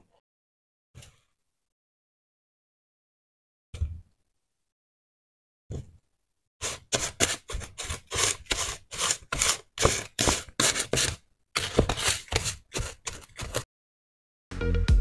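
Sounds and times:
spoon scraping salt in a bowl: 6.6s - 13.7s.

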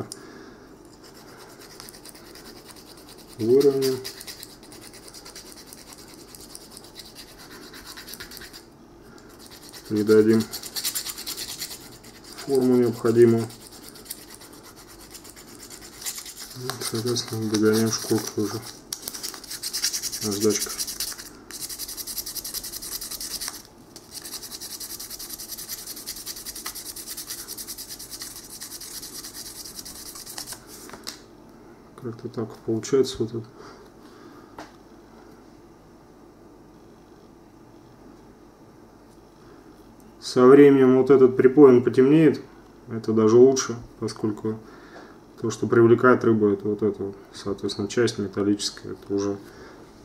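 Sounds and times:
sandpaper rubbing on metal: 1.0s - 8.7s, 9.4s - 30.6s
file scraping metal: 9.4s - 18.7s.

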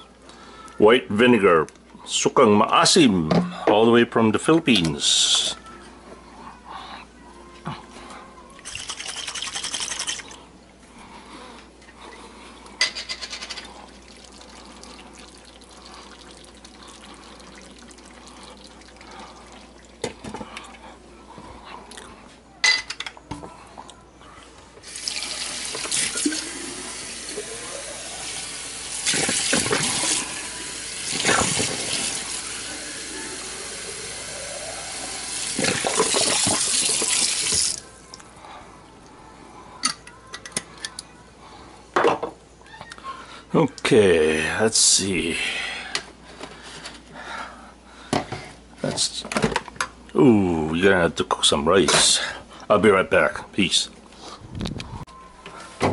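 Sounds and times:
faucet running water into sink: 24.8s - 37.8s.

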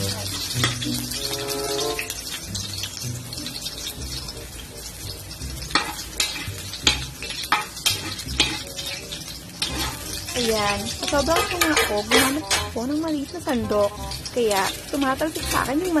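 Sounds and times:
onions sizzling in oil: 0.0s - 16.0s
metal ladle scraping a wok: 5.7s - 12.8s.

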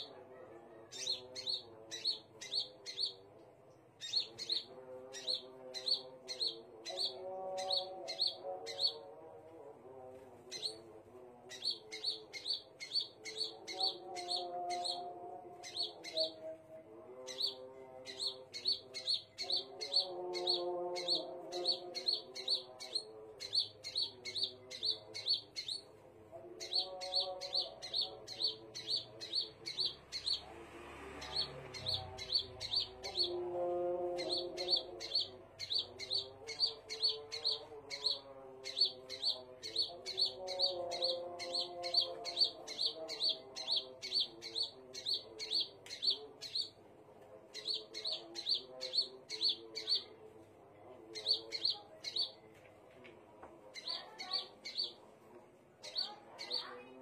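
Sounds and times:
bird chirping high sharp chirps: 31.2s - 33.4s, 34.2s - 46.8s, 51.2s - 52.4s, 53.8s - 55.0s.

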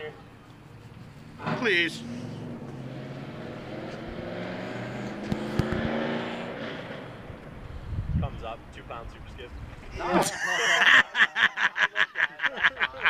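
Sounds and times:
engine droning past: 0.8s - 8.1s
sharp clicks: 5.1s - 6.0s.

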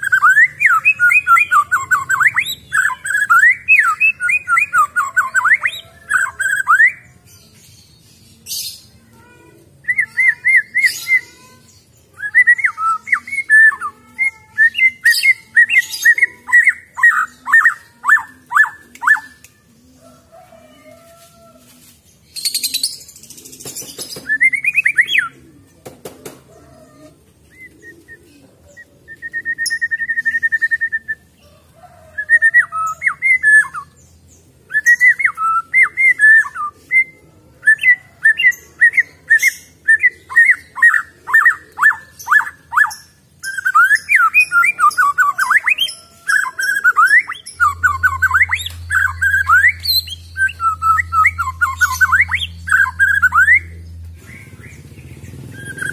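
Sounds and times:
bird singing whistled phrases: 0.0s - 7.0s, 9.9s - 11.3s, 12.2s - 19.5s, 24.2s - 25.3s, 29.1s - 31.3s, 34.7s - 53.8s, 55.5s - 55.9s
low hum: 47.4s - 55.6s.

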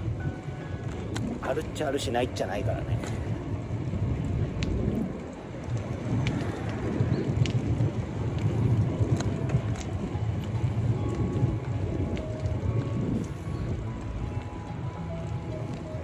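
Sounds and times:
traffic noise: 0.0s - 16.0s
wind buffeting microphone: 0.0s - 16.0s
faint clicks: 4.4s - 16.0s.

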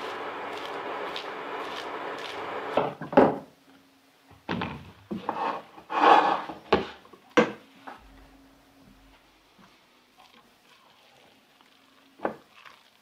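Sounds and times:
hands rustling shredded cabbage: 0.0s - 2.8s, 10.2s - 13.0s
spatula scraping a metal pot: 5.2s - 6.5s.

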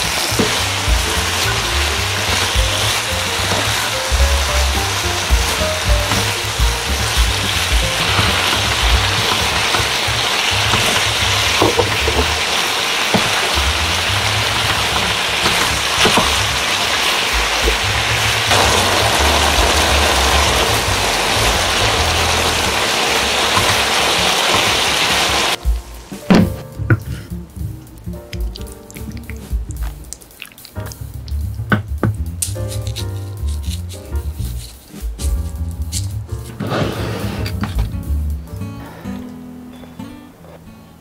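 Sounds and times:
food sizzling in a frying pan: 0.0s - 26.1s
background music: 0.0s - 41.0s.

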